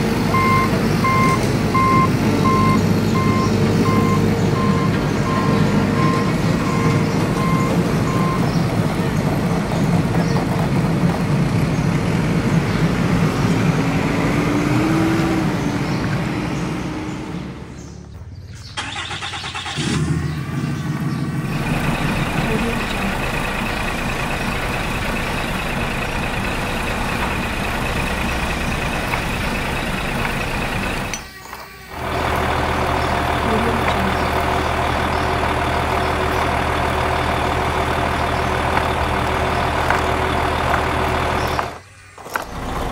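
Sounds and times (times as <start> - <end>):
truck engine running: 0.0 - 42.9
reversing beeps: 0.3 - 8.5.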